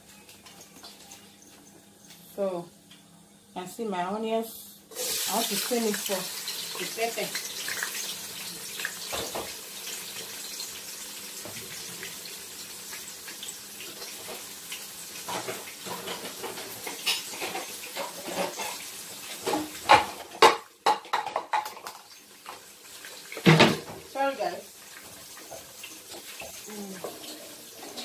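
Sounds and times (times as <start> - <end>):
tap water running into sink: 5.0 - 17.1
dishes and utensils clattering: 9.0 - 9.6, 15.2 - 22.6, 23.2 - 24.0, 25.0 - 28.0.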